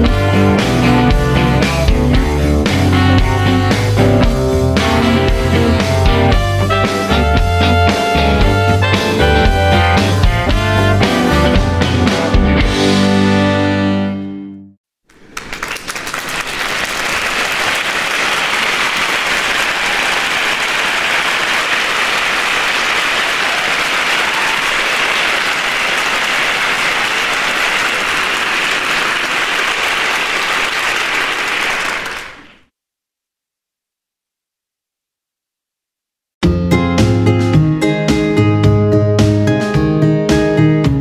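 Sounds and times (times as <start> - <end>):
applause: 15.1 - 32.7.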